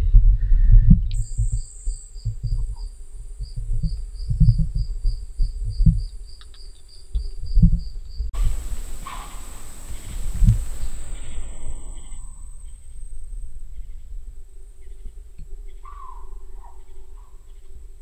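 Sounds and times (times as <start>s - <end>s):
insects whining: 1.2s - 16.7s
insects pulsing chirp: 1.2s - 17.6s
footsteps: 8.4s - 12.8s.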